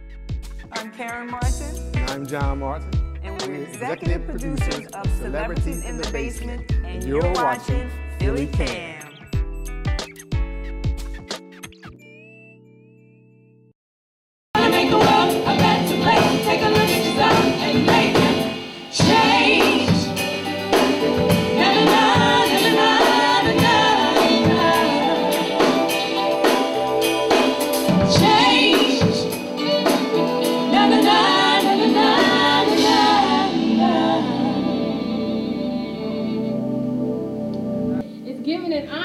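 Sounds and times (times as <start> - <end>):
live band music: 0.4 - 9.3, 14.6 - 38.1
women singing together: 14.6 - 26.8, 27.7 - 35.8.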